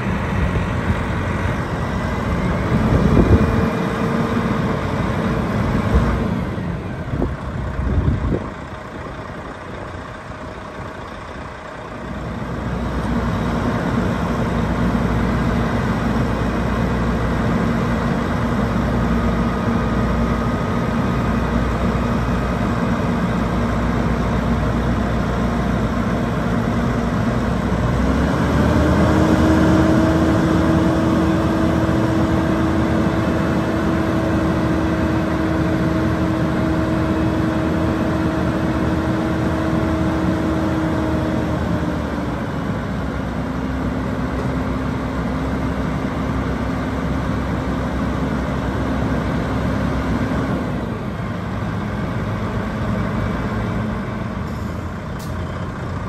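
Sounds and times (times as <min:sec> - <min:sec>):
diesel truck engine running: 0:00.0 - 0:56.0.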